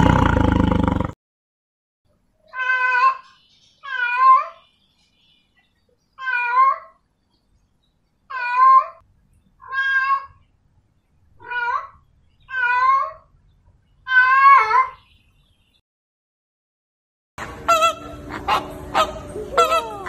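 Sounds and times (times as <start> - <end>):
cat meowing: 2.5 - 3.2, 9.6 - 10.4, 11.4 - 13.2, 14.1 - 15.0.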